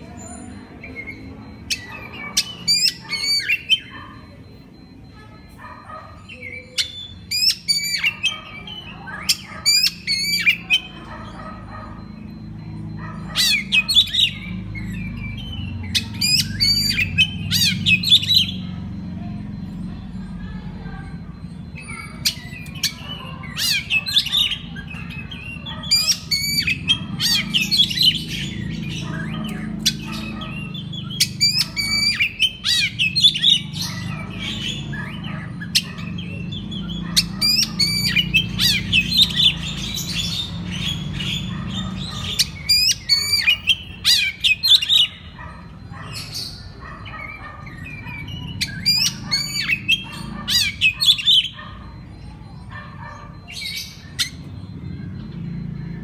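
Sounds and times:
songbird singing: 0.0s - 56.0s.

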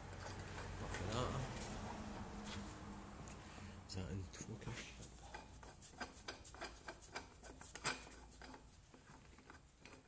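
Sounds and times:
hand tools clicking and tapping: 5.2s - 10.0s.

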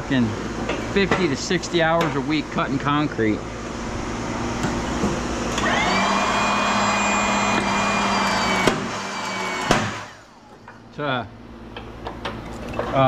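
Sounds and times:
small electric motor whining: 3.9s - 10.7s.

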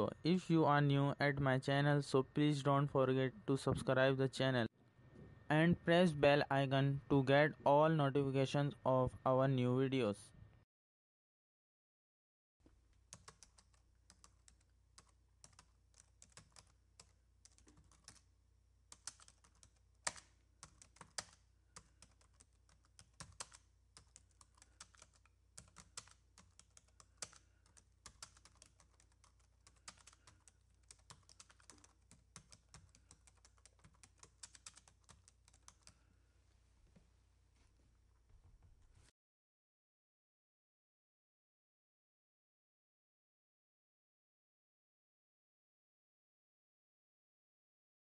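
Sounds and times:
computer keyboard typing: 13.1s - 18.3s, 18.9s - 36.1s.

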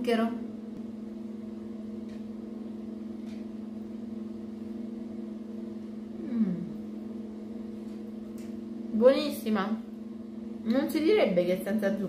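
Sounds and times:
steady low hum: 0.0s - 12.0s
person humming: 6.2s - 6.8s.

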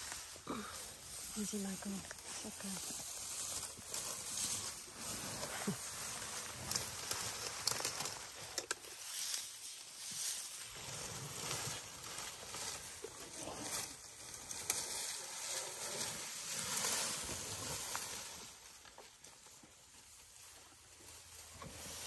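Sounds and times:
leaves and branches rustling: 0.0s - 22.0s
twigs cracking: 5.4s - 9.4s.

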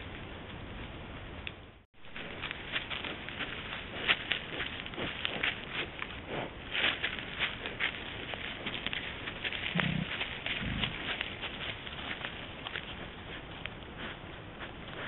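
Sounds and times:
boar rustling in grass: 2.0s - 15.0s.

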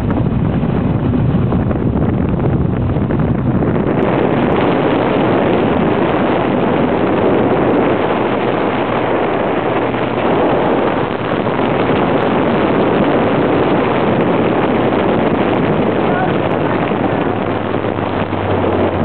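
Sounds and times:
motorboat engine running: 0.0s - 19.0s
wind buffeting microphone: 0.0s - 19.0s.

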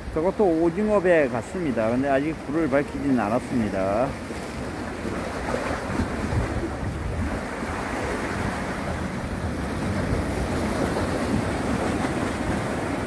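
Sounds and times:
waves washing on breakwater: 0.0s - 13.0s
wind on microphone: 4.1s - 13.0s.

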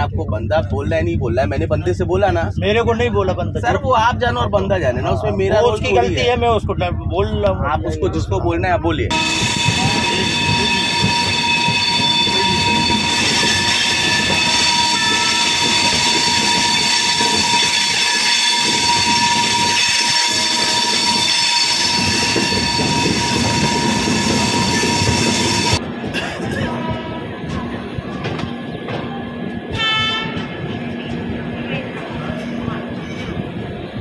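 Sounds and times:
train wheels on track: 0.0s - 34.0s
high whine: 9.0s - 34.0s.

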